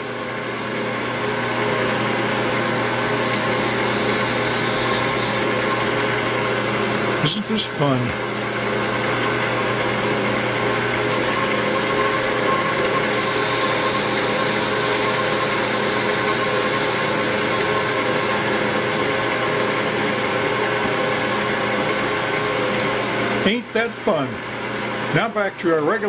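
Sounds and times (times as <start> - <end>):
metal lathe running: 0.0 - 26.0
hiss of lathe cutting: 3.2 - 6.2, 11.0 - 19.0.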